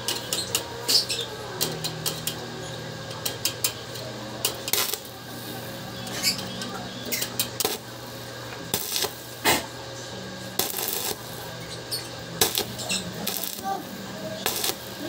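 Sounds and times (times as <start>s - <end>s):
steady low hum: 0.0s - 15.0s
welding arc crackling: 3.0s - 15.0s.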